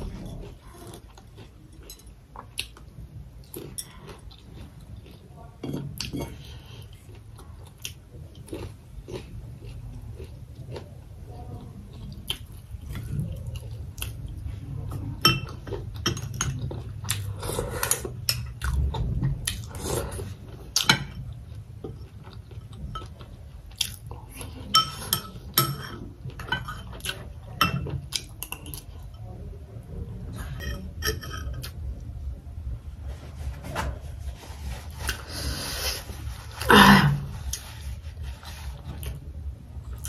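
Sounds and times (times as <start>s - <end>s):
chewing: 0.0s - 29.2s.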